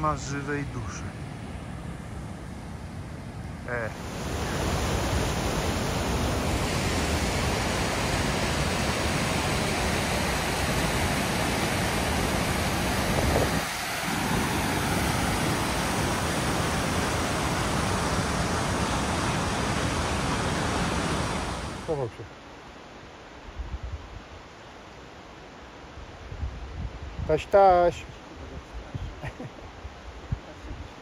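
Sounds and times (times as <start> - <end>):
stream rushing over rocks: 3.7 - 22.0.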